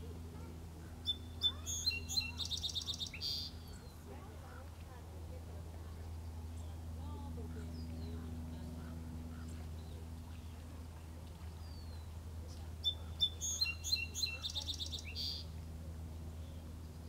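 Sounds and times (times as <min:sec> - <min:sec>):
steady low hum: 0:00.0 - 0:17.0
faint bird chirps: 0:00.8 - 0:04.0, 0:11.6 - 0:15.5
songbird singing with trill: 0:00.8 - 0:04.1, 0:11.5 - 0:15.5.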